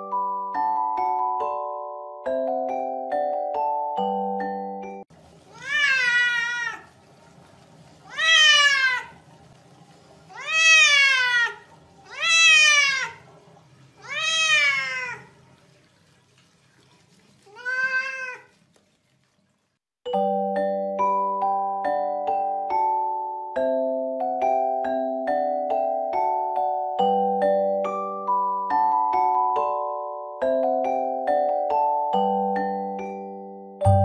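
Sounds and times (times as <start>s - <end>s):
cat meowing loudly: 5.5s - 6.9s, 8.1s - 9.2s, 10.3s - 13.2s, 14.0s - 15.3s, 17.5s - 18.5s.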